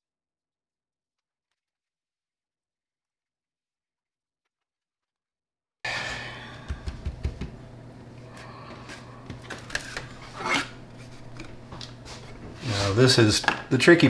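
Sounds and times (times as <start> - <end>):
low hum: 5.9 - 12.6.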